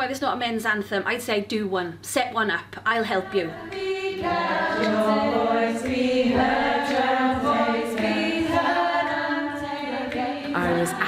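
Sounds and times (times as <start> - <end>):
women's choir singing: 3.0 - 11.0.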